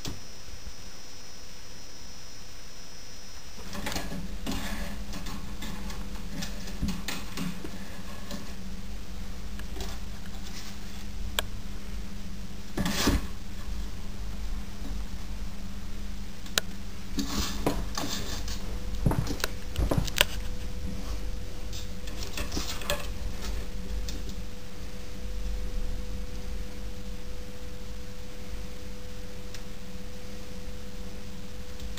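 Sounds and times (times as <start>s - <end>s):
steady low hum: 0.0s - 31.9s
claws scraping wooden spindles: 3.6s - 8.6s, 17.1s - 23.7s.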